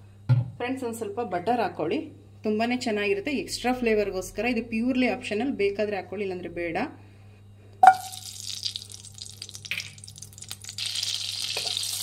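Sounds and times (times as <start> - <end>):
butter hitting hot oil: 7.8 - 12.0
butter sizzling: 7.9 - 12.0.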